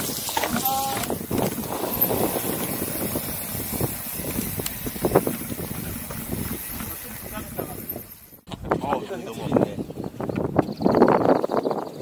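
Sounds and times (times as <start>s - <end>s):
mountain bike rattling over bumps: 0.0s - 8.5s
wind on microphone: 0.0s - 12.0s.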